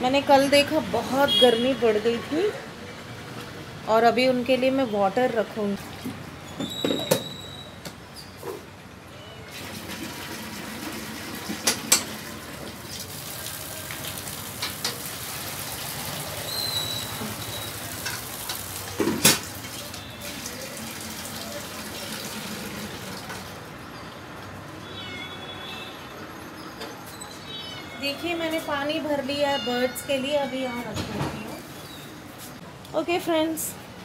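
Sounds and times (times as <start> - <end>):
water pouring and splashing: 9.5 - 23.7.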